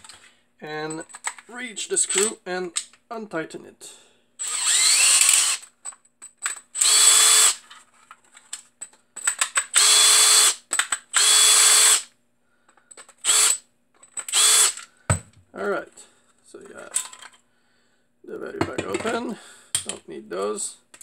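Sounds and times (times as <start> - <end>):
cordless drill motor bursts: 4.4 - 5.6, 6.8 - 7.6, 9.7 - 12.1, 13.2 - 13.6, 14.3 - 14.8.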